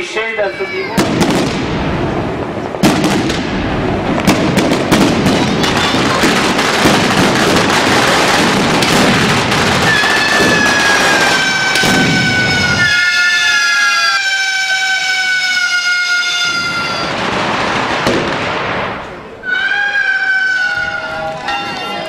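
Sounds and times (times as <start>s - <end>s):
firecrackers crackling and popping: 0.0s - 22.0s
high whistling falling tone: 19.4s - 22.0s.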